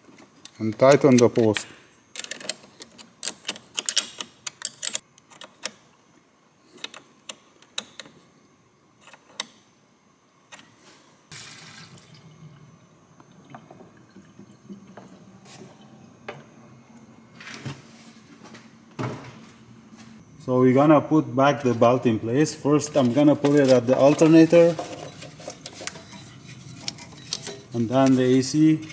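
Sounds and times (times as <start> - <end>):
coolant pouring from a jug: 11.3 - 12.4.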